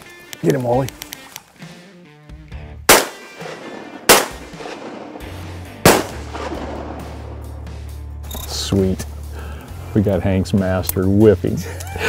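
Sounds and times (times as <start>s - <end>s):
shotgun shots ringing out: 2.9s - 7.4s.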